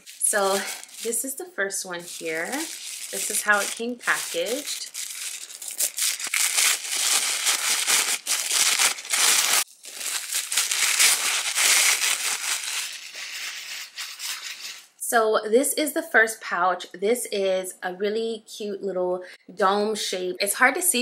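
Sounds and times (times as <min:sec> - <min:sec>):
packaging crinkling: 0:00.0 - 0:14.9.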